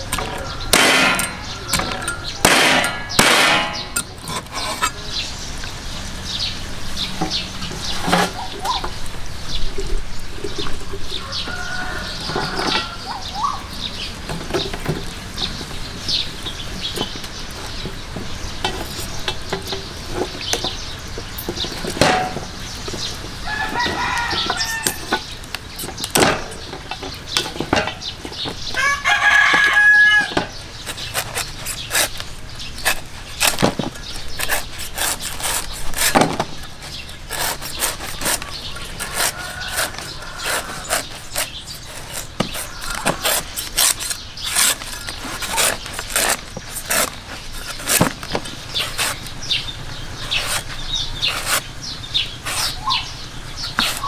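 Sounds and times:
rooster crowing: 11.1s - 13.2s, 23.4s - 25.2s, 28.8s - 30.5s, 39.1s - 41.0s.

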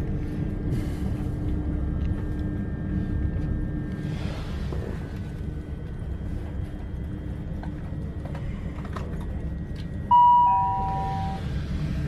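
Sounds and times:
train cabin rumble: 4.1s - 12.0s
two-note chime: 10.1s - 11.4s.

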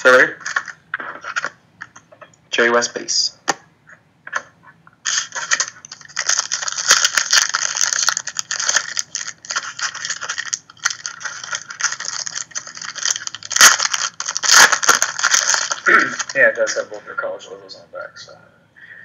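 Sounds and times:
foil wrapper crinkling: 0.4s - 1.5s, 5.0s - 16.8s.

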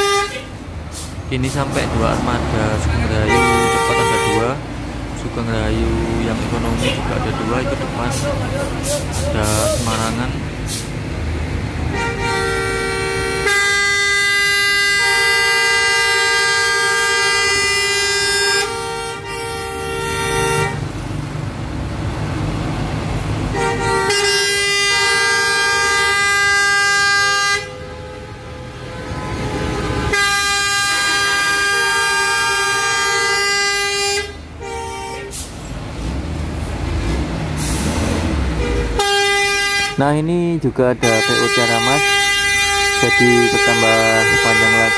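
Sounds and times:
bus horn blasts: 0.0s - 1.1s, 2.6s - 4.6s, 11.8s - 21.0s, 23.5s - 35.5s, 38.5s - 40.1s, 40.8s - 44.9s
bus engines idling: 0.0s - 44.9s.

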